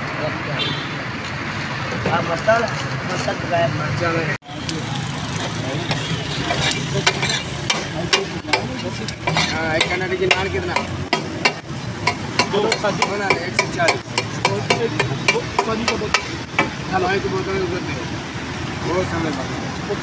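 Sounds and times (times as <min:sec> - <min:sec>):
eggs sizzling in oil: 0:04.6 - 0:14.3
metal spatula scraping griddle: 0:05.4 - 0:11.6.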